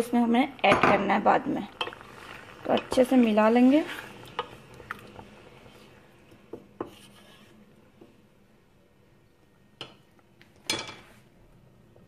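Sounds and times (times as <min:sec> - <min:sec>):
wooden spoon scraping pot: 0:01.4 - 0:08.1.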